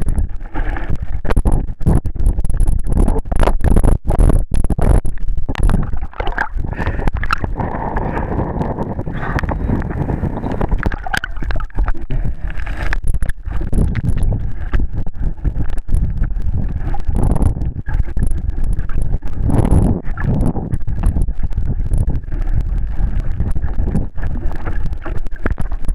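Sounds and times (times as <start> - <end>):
underwater knocks and clicks: 0.0 - 25.9
underwater rumble of moving water: 0.0 - 25.9.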